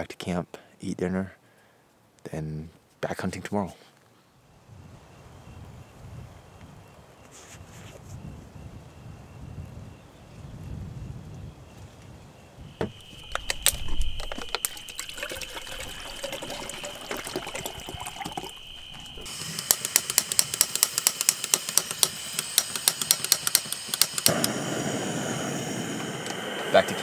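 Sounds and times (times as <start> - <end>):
gas burner rushing: 12.8 - 27.0
water pouring into a cup: 12.9 - 19.3
stove igniter clicking: 19.2 - 24.6.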